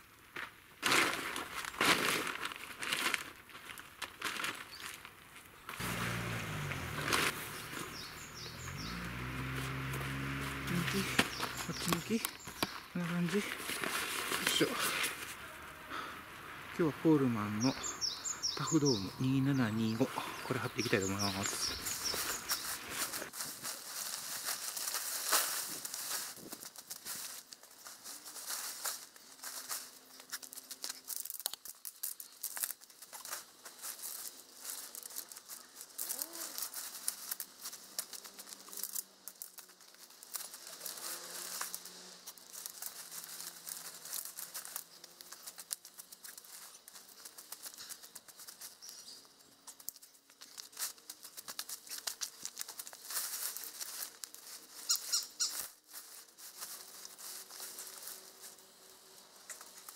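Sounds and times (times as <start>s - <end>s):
nylon fabric rustling: 5.7s - 15.4s
tent pole sliding along fabric: 5.8s - 12.6s.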